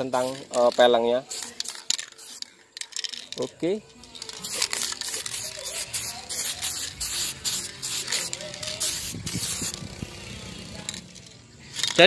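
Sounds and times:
spray-paint can hissing: 0.0s - 0.6s, 1.2s - 3.1s, 4.1s - 10.6s.

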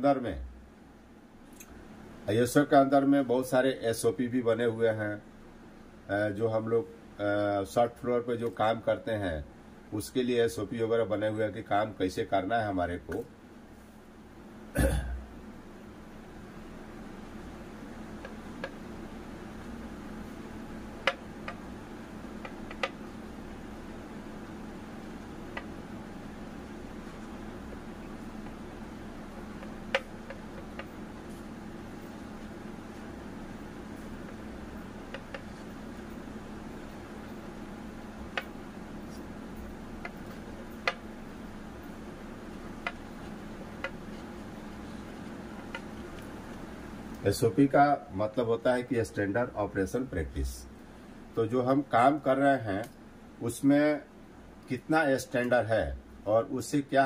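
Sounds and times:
steady low hum: 0.0s - 57.0s
marker tapping on whiteboard: 21.0s - 21.6s, 22.4s - 23.0s, 29.6s - 31.0s, 35.1s - 35.6s, 42.8s - 43.1s.

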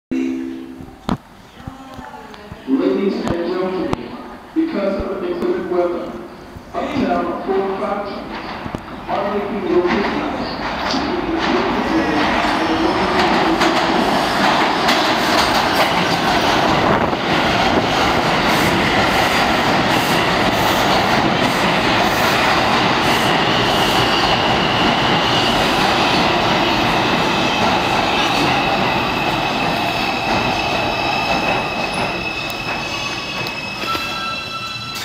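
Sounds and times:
steel wheels on rail: 8.0s - 35.0s
high brake squeal: 29.1s - 35.0s.

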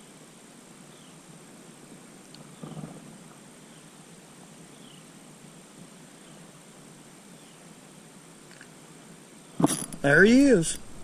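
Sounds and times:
low rustle: 1.2s - 11.0s.

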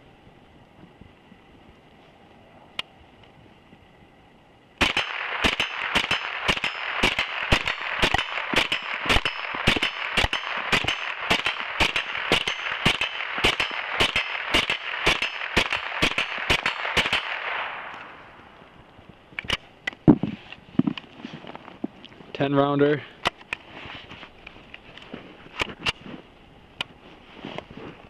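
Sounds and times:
rifle firing rapid shots: 4.8s - 18.2s.

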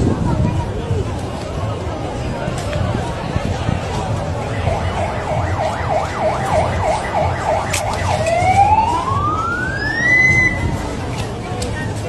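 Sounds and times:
emergency vehicle siren: 4.2s - 11.0s.

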